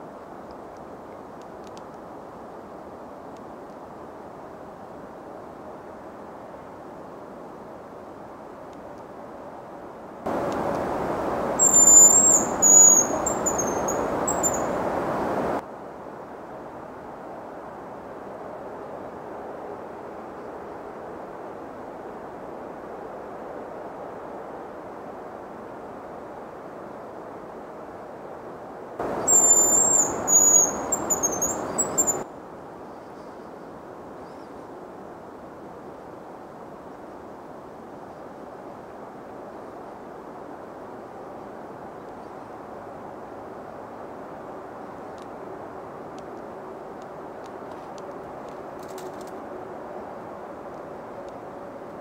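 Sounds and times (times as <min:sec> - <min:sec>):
steady hiss: 0:00.0 - 0:52.0
bird high thin whistles: 0:11.6 - 0:14.7, 0:29.2 - 0:32.2.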